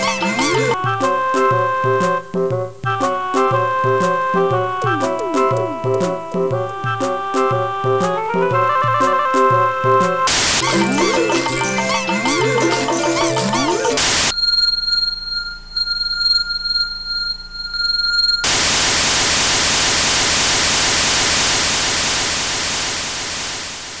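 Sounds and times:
game music: 0.0 - 14.3
tv static hiss: 10.3 - 10.7, 18.5 - 24.0
high steady whine: 14.0 - 24.0.

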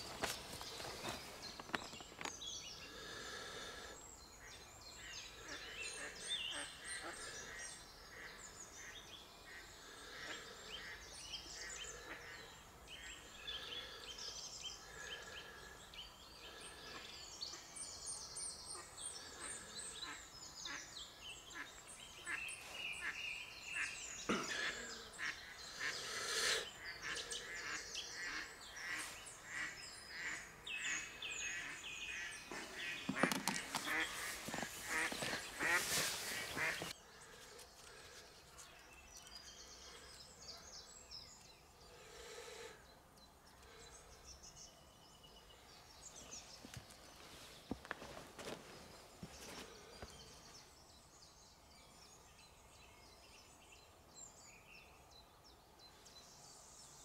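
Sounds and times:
birds singing and calling: 0.0 - 57.0
honking bird calls: 18.7 - 37.0.

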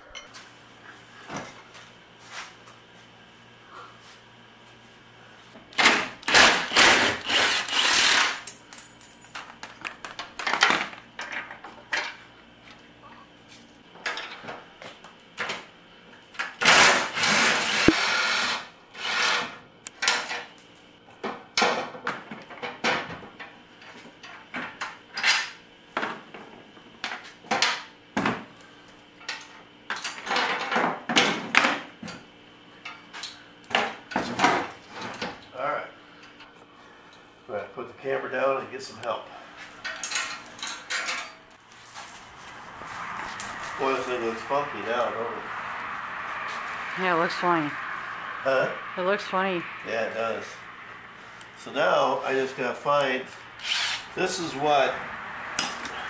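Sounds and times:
hand tools and metal parts clanking: 0.0 - 0.4, 5.8 - 12.8, 13.4 - 14.6, 29.2 - 32.2, 39.6 - 42.5, 55.6 - 56.0.

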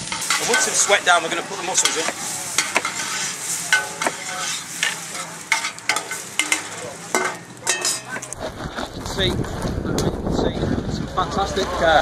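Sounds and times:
food sizzling in a pot: 0.0 - 8.4
utensil scraping metal pot: 0.0 - 8.5.

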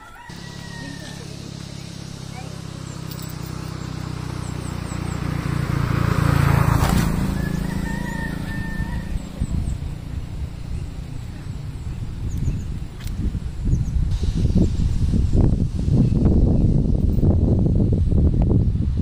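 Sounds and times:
distant rooster crowing: 0.0 - 1.6, 7.0 - 9.7
vehicle rumbling past: 0.2 - 19.0
wind buffeting microphone: 0.3 - 19.0.

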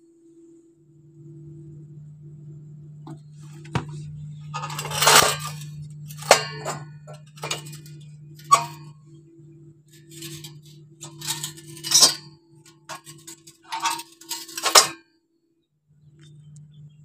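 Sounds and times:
steady low hum: 0.0 - 15.0, 15.8 - 17.0
metallic clinks and scrapes: 3.4 - 9.0, 10.0 - 15.0.

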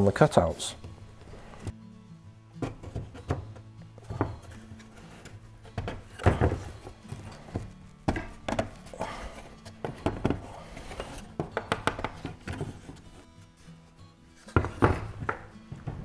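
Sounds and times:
wooden parts knocking: 2.6 - 4.6, 5.7 - 8.8, 9.8 - 13.0, 14.5 - 16.0.

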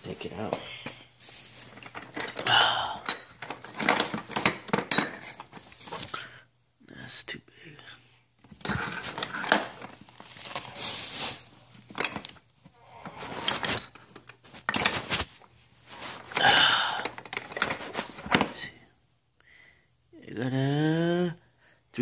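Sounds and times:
bag rustling: 1.2 - 6.2, 8.7 - 16.4
metal tools clinking in bag: 1.3 - 6.1, 8.6 - 12.4, 13.1 - 15.3, 15.9 - 18.7.

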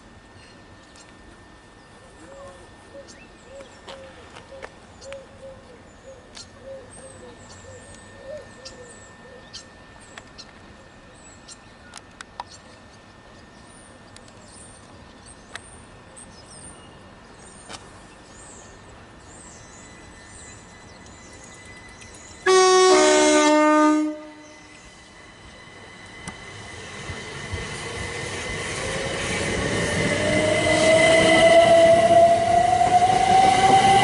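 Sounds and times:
train two-tone horn: 22.4 - 24.9, 30.2 - 34.0.

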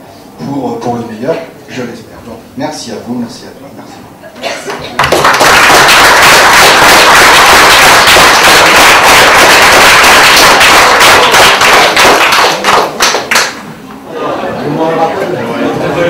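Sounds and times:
audience applauding: 5.0 - 13.6.

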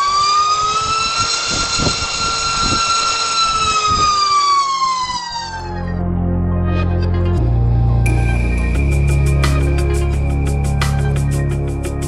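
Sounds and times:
electric motor propeller whine: 0.0 - 6.2.

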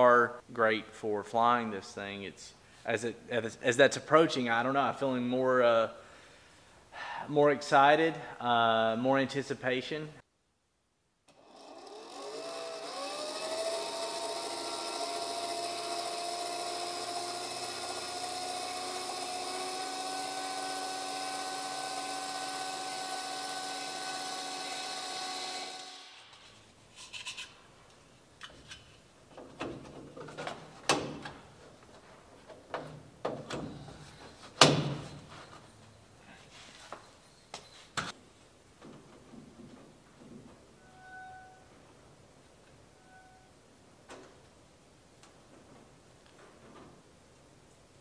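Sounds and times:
small electric motor whining: 11.3 - 26.3.

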